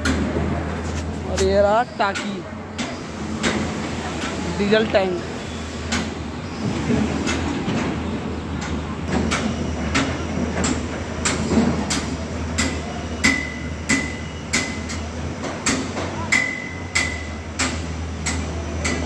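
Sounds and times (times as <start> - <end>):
hammer striking metal: 9.3 - 19.0.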